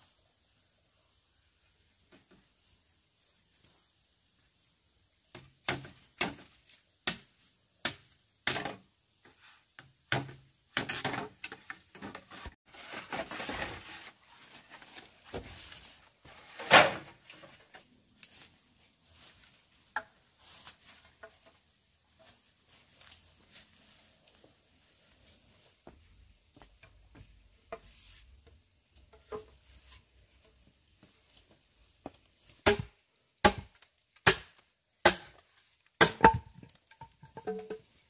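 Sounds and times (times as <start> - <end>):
wood rustling and crackling: 10.9 - 25.2.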